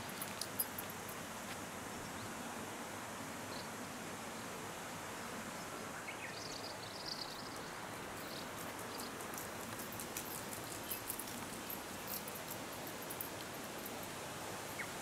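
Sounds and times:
open air hiss: 0.0s - 15.0s
faint high ticks: 8.3s - 14.9s.

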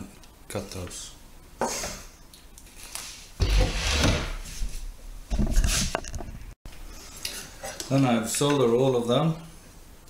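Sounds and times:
circuit board rubbing and scraping: 3.0s - 4.7s.

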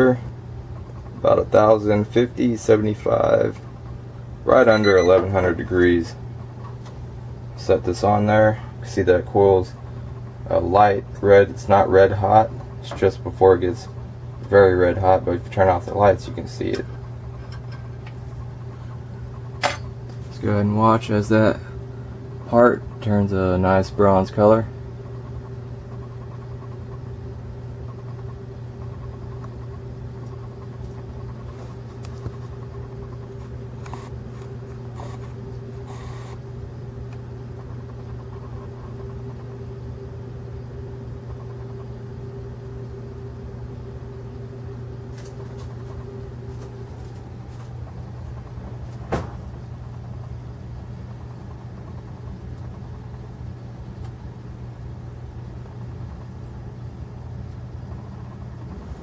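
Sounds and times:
low mechanical hum: 0.0s - 59.0s
faint steady tone: 4.5s - 5.6s.

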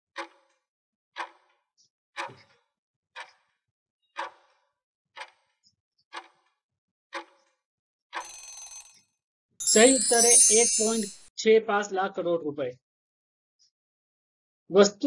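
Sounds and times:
clock-like timer ticks: 0.2s - 0.6s, 1.2s - 1.5s, 3.2s - 3.4s, 4.2s - 4.5s, 5.2s - 5.5s, 6.1s - 6.5s, 7.2s - 7.5s, 8.2s - 9.0s.

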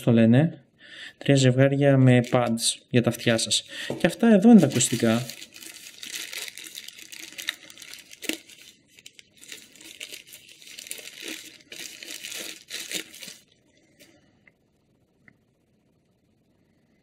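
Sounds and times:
paper crinkling: 2.2s - 2.6s, 3.2s - 13.6s.

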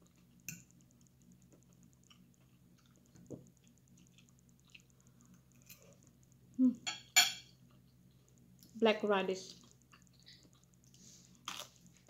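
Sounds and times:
metal fork on ceramic plate: 6.9s - 7.5s.

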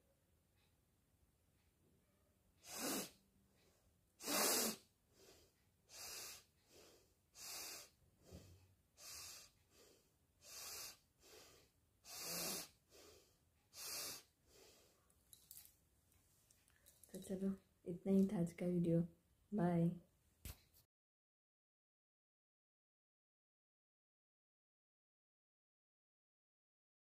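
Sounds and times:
woman sniffing: 2.6s - 3.2s, 4.2s - 14.8s
soft nasal breath: 2.6s - 15.1s.

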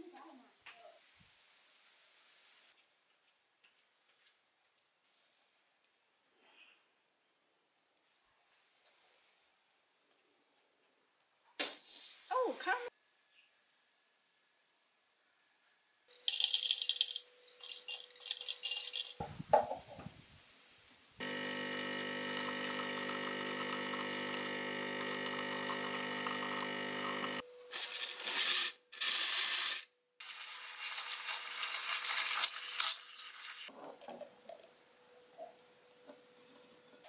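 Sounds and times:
espresso machine pump humming: 21.2s - 27.4s.

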